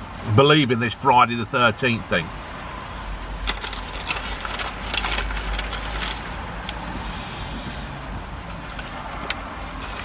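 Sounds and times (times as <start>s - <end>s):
low vehicle rumble: 2.4s - 10.0s.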